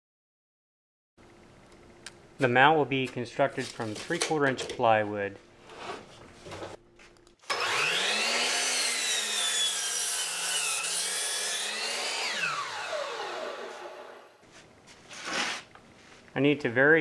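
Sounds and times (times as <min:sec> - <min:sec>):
miter saw motor whine: 0:07.4 - 0:14.3
saw cutting through plywood: 0:07.4 - 0:14.4.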